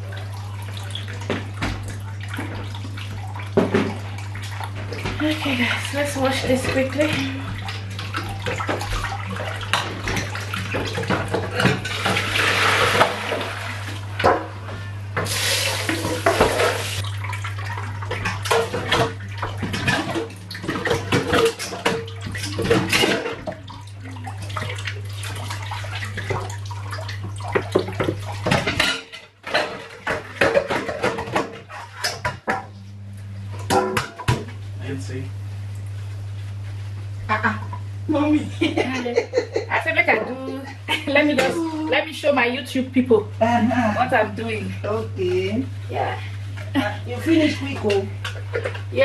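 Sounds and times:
dishes and cutlery clattering: 18.1s - 23.6s, 27.6s - 32.7s.

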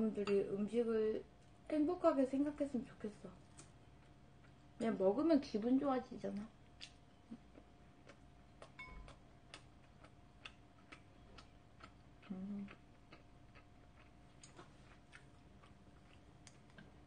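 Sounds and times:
low hum of enjoyment: 6.4s - 14.6s
person chewing food: 6.8s - 17.0s.

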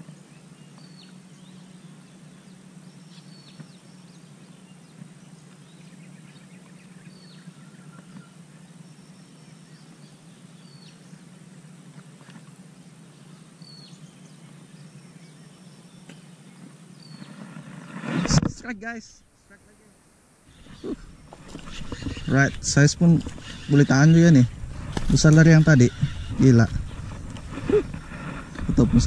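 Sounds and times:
steady low hum: 0.0s - 29.0s
small bird chirping: 20.5s - 29.0s.

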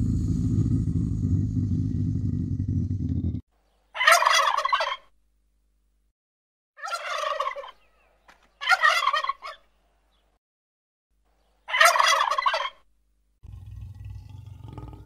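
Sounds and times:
turkeys gobbling: 4.0s - 5.1s, 6.8s - 7.9s, 8.6s - 9.7s, 11.7s - 12.8s.

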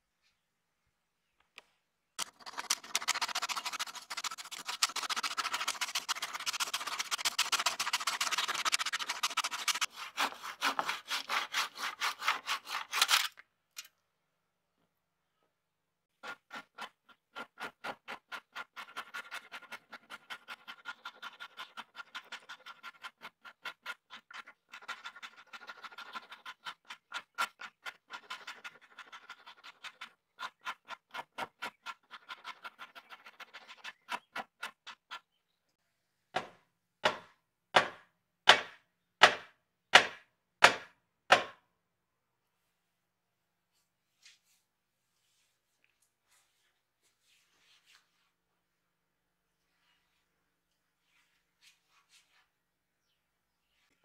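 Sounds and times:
handsaw cutting wood: 2.2s - 13.1s
metal file rasping wood: 2.2s - 13.2s.

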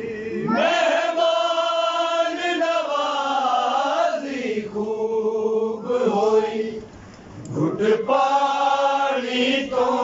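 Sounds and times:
men chanting a lament: 0.0s - 6.8s, 7.5s - 10.0s.

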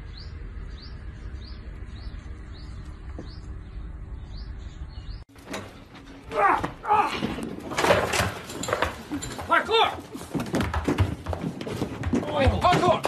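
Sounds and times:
bird chirping: 0.0s - 5.3s.

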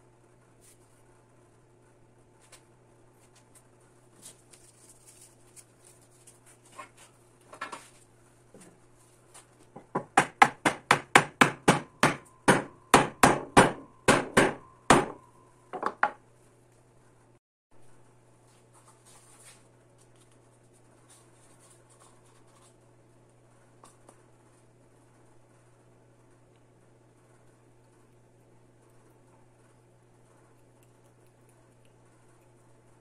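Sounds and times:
hammer striking wood: 9.8s - 15.2s.

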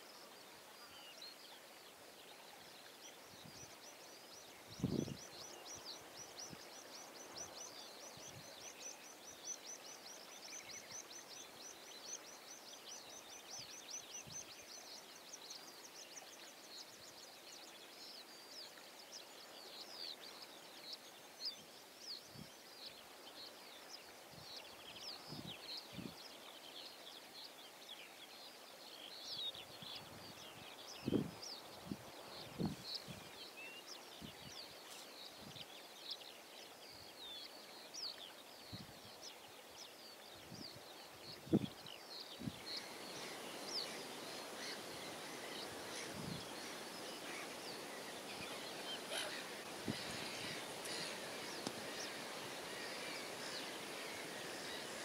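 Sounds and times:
faint hiss: 0.0s - 55.0s
small birds chirping trills: 0.0s - 55.0s.

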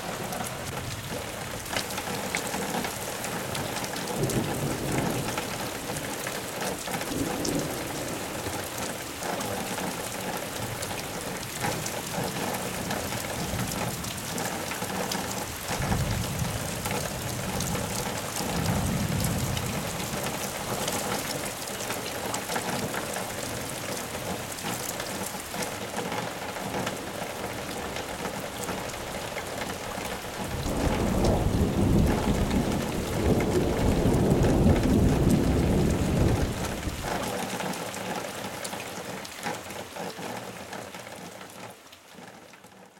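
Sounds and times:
rain falling: 0.0s - 42.9s
thunder rumbling: 3.4s - 6.2s, 6.9s - 10.0s, 15.4s - 24.4s, 28.2s - 37.4s.

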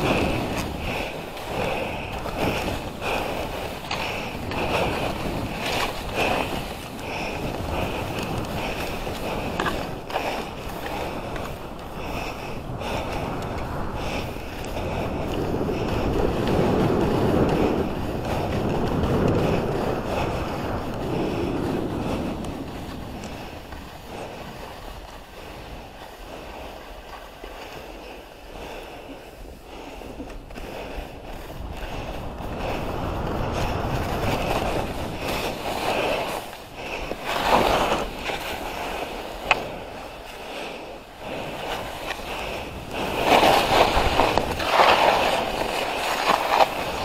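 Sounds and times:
skis scraping over snow: 0.0s - 47.0s
wind rushing on microphone: 0.0s - 47.0s.

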